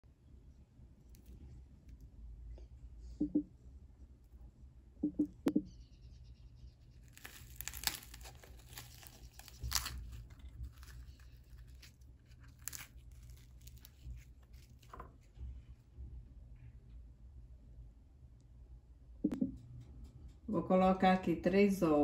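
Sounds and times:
bread crust crackling and tearing: 0:01.0 - 0:01.4, 0:06.9 - 0:15.4.

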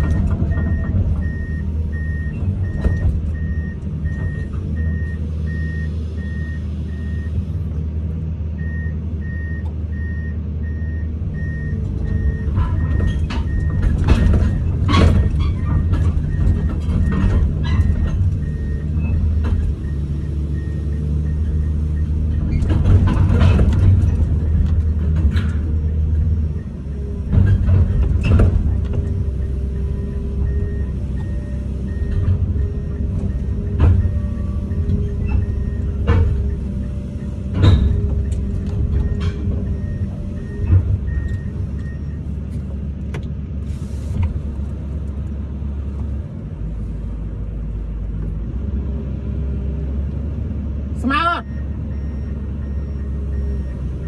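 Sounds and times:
loud metallic knocks and clanks: 0:00.0 - 0:05.0, 0:12.1 - 0:19.9, 0:22.2 - 0:30.6, 0:31.9 - 0:42.2
excavator diesel engine running: 0:00.0 - 0:54.0.

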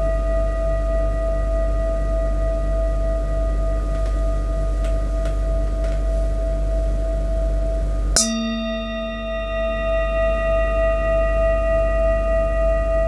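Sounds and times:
metal singing bowl ringing: 0:08.2 - 0:13.0.

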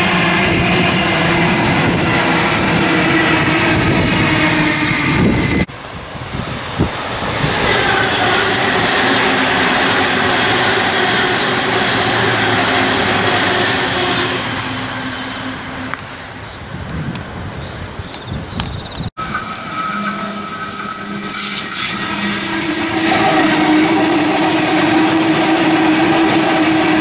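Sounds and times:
electric trains passing: 0:00.0 - 0:16.6, 0:19.2 - 0:27.0
steady whine of held tones: 0:19.2 - 0:25.0.

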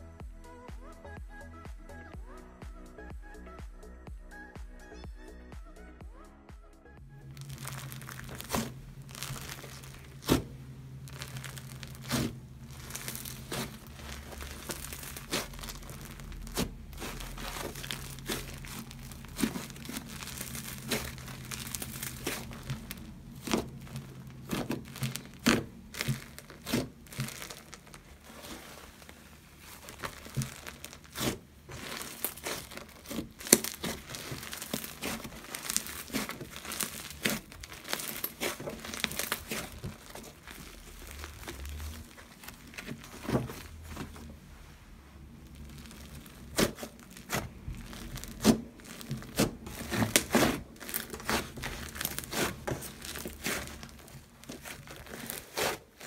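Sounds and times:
soft slime crackle: 0:07.2 - 0:56.0
slime clicking and popping: 0:07.4 - 0:28.1, 0:29.8 - 0:41.8, 0:45.5 - 0:55.8.

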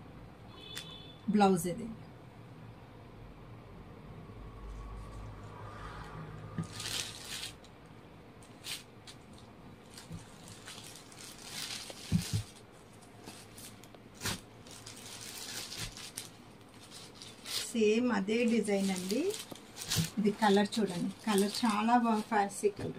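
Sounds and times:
cloth rustling: 0:06.6 - 0:07.7, 0:08.4 - 0:22.7.

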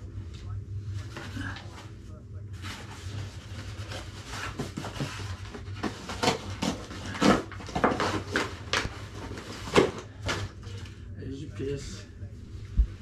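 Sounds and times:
paper rustling and crinkling: 0:02.6 - 0:11.0.

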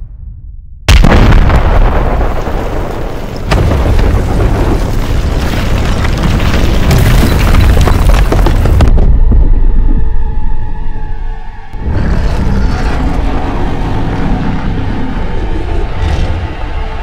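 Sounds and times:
huge explosion rumble: 0:00.0 - 0:10.7.

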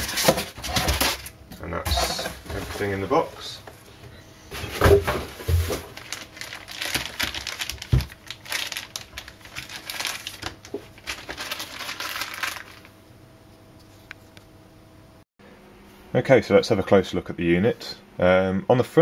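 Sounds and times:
plastic packaging crinkling: 0:04.6 - 0:13.0.

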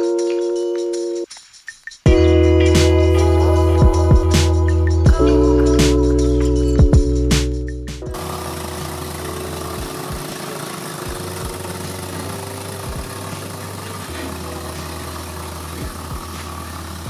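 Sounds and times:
train running rumble: 0:08.1 - 0:17.0
wheels knocking over rail joints: 0:08.2 - 0:17.0.

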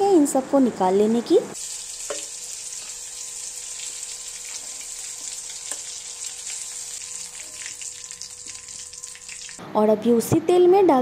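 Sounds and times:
oil sizzling with crackles: 0:01.6 - 0:09.6
spoon knocking against pan: 0:02.1 - 0:02.3.

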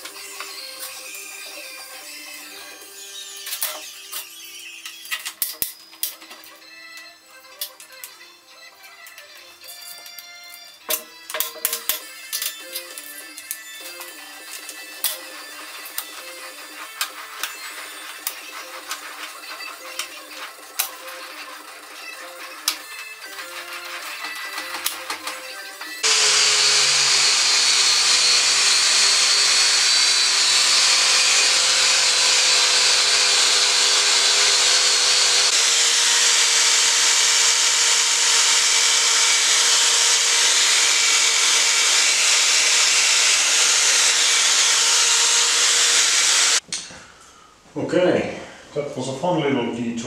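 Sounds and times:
music: 0:00.0 - 0:26.1
drill motor whining: 0:12.2 - 0:46.6.

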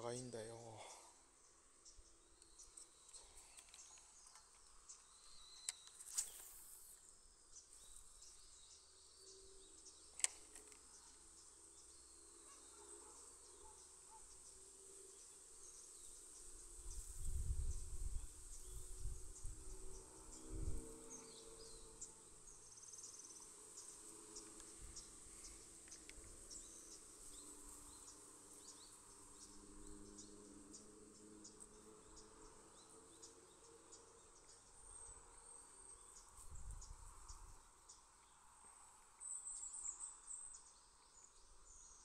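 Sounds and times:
insects chirping: 0:00.0 - 0:41.4
sharp clicks: 0:10.1 - 0:10.8.

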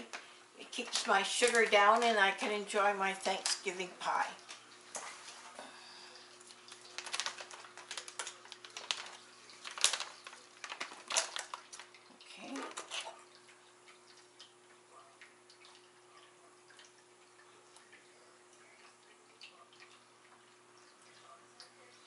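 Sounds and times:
plastic bag and cans handled: 0:00.8 - 0:02.2, 0:06.6 - 0:13.1.

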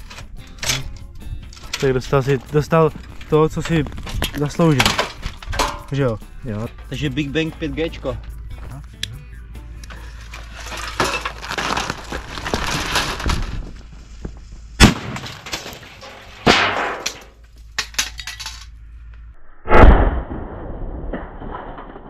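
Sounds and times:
sharp cracks: 0:14.8 - 0:17.4, 0:19.7 - 0:22.0
noisy crackle: 0:19.2 - 0:22.0
firecracker heavy bang: 0:19.7 - 0:22.0.

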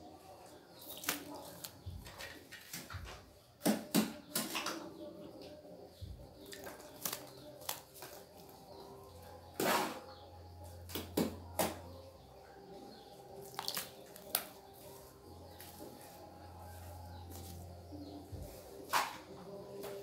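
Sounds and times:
trowel scraping and slapping mortar: 0:09.5 - 0:10.2.

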